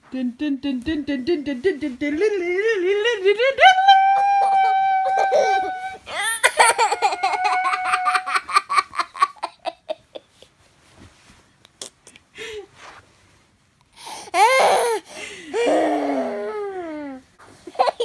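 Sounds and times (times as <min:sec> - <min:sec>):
girl laughing: 0:03.1 - 0:10.4.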